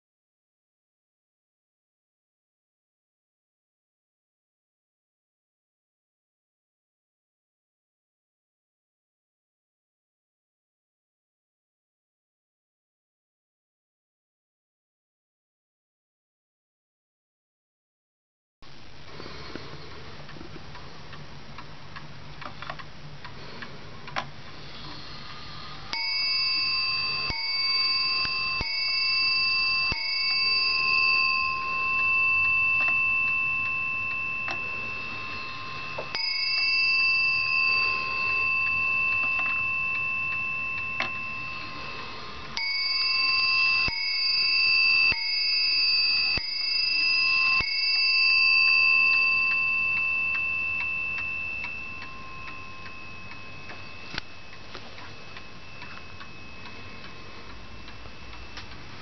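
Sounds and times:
wall clock bell striking: 0:25.9 - 0:58.6.

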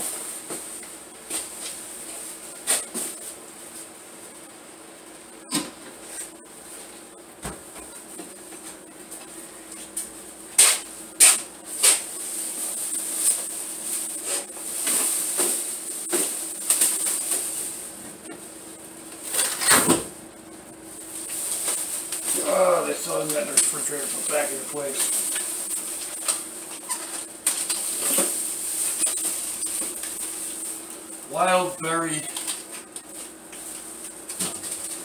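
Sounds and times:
plastic bags rustling: 0:11.6 - 0:19.7, 0:20.9 - 0:35.0.

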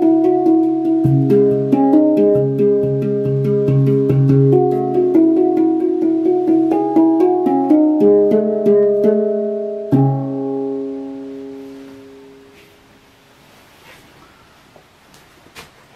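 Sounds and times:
handpan notes ringing: 0:00.0 - 0:12.6.

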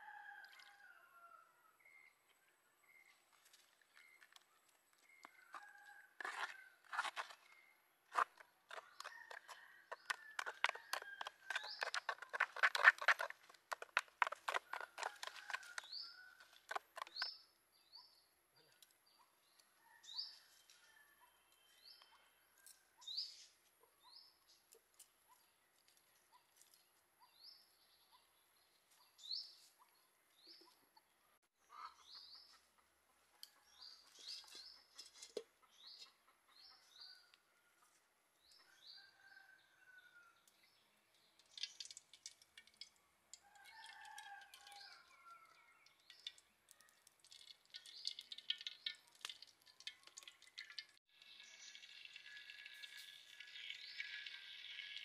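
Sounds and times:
spoon scraping and stirring in bowl: 0:05.5 - 0:07.4, 0:08.1 - 0:17.3.

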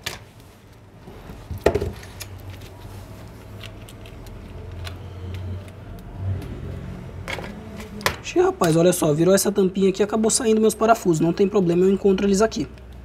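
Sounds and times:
small clicks and handling noise: 0:00.0 - 0:06.6.

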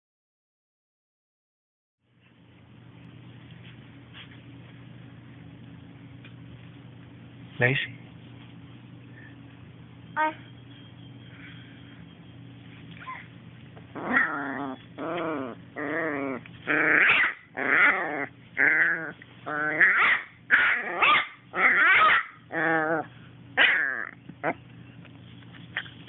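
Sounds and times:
dog whining: 0:13.0 - 0:24.8.

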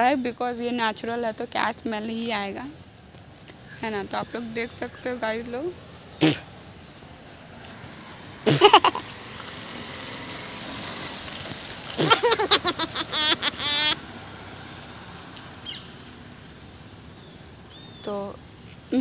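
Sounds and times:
background hum: 0:00.0 - 0:14.1
puffs and lip sputters: 0:06.2 - 0:06.5, 0:08.5 - 0:09.0, 0:11.1 - 0:14.0.

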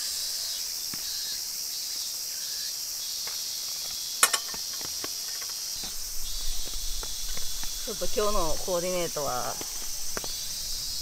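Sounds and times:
insects chirping: 0:00.0 - 0:11.0
frying pan clinking on stove: 0:04.2 - 0:04.7.

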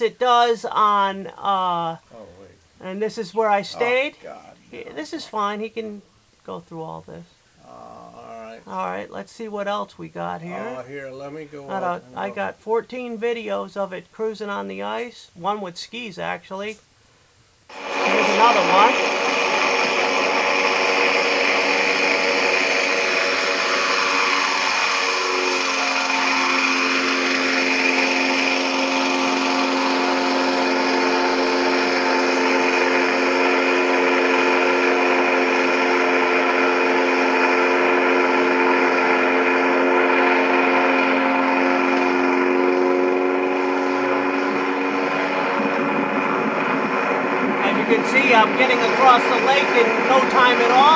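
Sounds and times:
propeller engine droning whine: 0:17.7 - 0:50.9.

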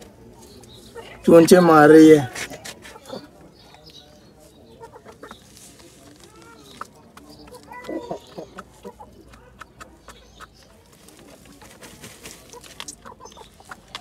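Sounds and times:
hen pecking and scratching: 0:00.0 - 0:01.3, 0:02.2 - 0:14.0
hen clucking: 0:04.5 - 0:14.0.

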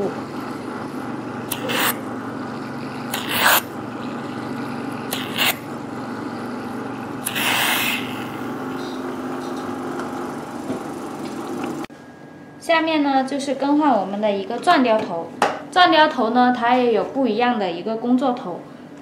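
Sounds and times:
suction pump humming: 0:00.0 - 0:11.9
sucking hiss bursts: 0:07.2 - 0:08.4.

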